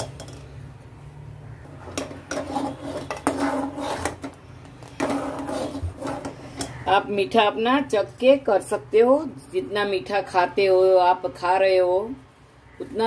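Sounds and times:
metal spoon scraping a metal pot: 1.8 - 6.9.

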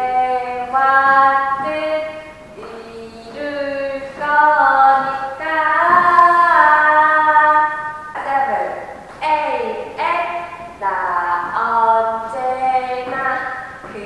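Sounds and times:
woman singing slow melody: 0.0 - 8.3.

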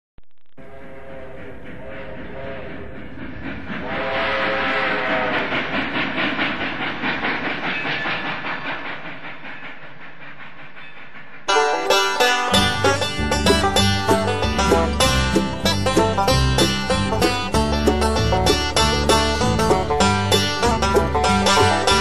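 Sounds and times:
train wheels clattering on rails: 1.2 - 22.0
train whistle chord: 3.8 - 5.4
banjo music: 11.5 - 22.0.

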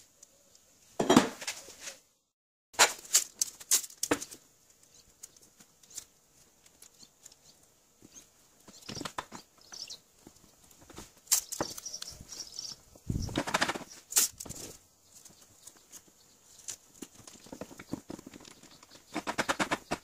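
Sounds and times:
masking tape pulled off roll: 2.8 - 7.4, 11.2 - 12.1, 13.4 - 14.8.

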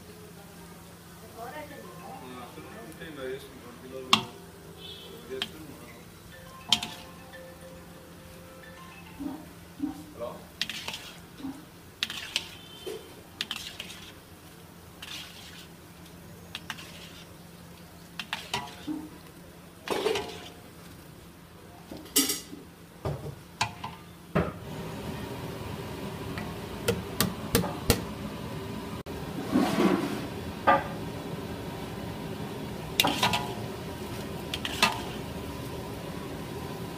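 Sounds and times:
oil sizzling: 0.0 - 36.9
metal ladle scraping iron pan: 6.7 - 7.2, 10.6 - 14.2, 14.9 - 15.8, 16.5 - 17.4, 18.2 - 19.2, 19.8 - 20.6, 33.0 - 33.6, 34.5 - 35.2.

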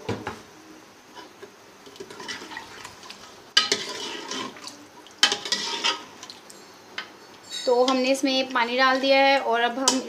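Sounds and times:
metal ladle scraping pot: 2.0 - 6.3.

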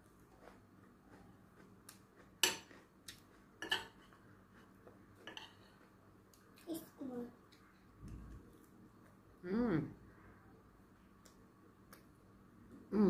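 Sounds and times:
cutlery clinking on plate: 3.6 - 4.2.

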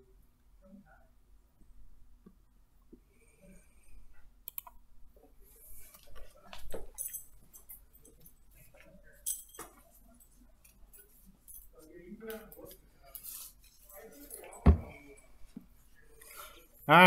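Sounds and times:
computer mouse clicking: 4.4 - 4.8.

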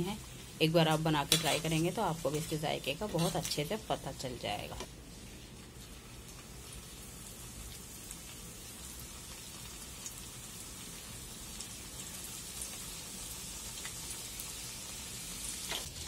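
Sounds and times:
hot oil sizzling: 0.0 - 16.0.

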